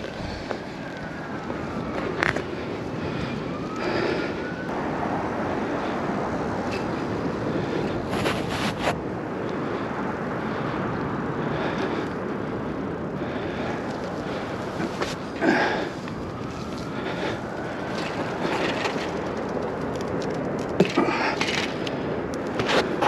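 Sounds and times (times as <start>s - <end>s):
wind over microphone: 0.0s - 20.8s
tyre and road noise: 0.0s - 23.0s.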